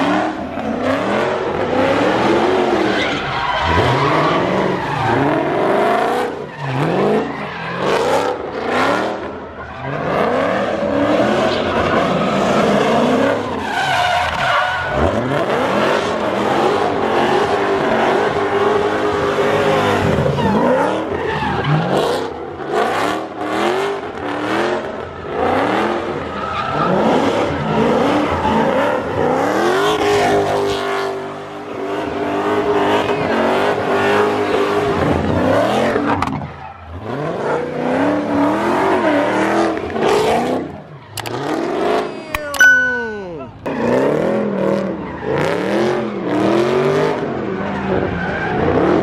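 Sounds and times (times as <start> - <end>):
car engine revving hard: 0.0 - 3.0, 43.6 - 49.0.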